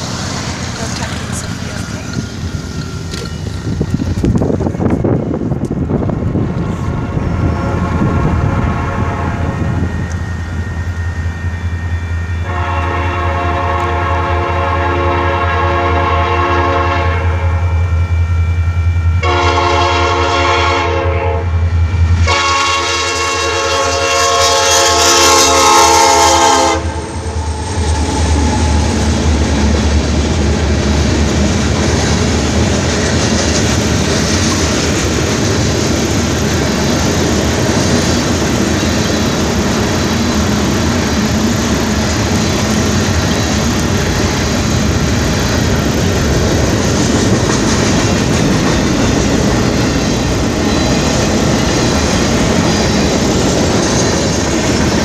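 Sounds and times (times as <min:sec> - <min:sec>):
train cars rumbling past: 0:00.0 - 0:55.0
locomotive air horn blasts: 0:06.9 - 0:09.8, 0:12.4 - 0:17.8, 0:19.2 - 0:21.6, 0:22.2 - 0:29.0.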